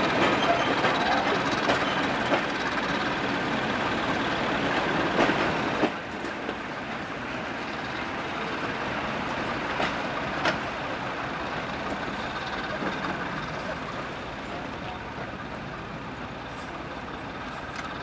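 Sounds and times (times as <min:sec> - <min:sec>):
wheels clicking over rail joints: 0:00.0 - 0:03.3, 0:09.2 - 0:10.8
train wheels running over track: 0:00.0 - 0:18.0.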